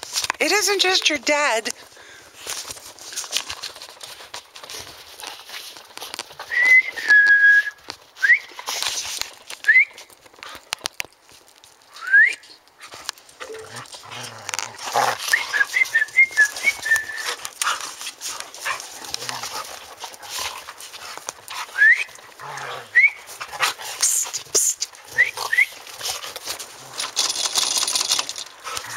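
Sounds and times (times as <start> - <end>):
dogs scuffling and playing: 0.0 - 7.1, 7.7 - 28.9
person whistling: 6.5 - 8.6, 12.0 - 12.4, 15.3 - 17.2, 21.8 - 22.1.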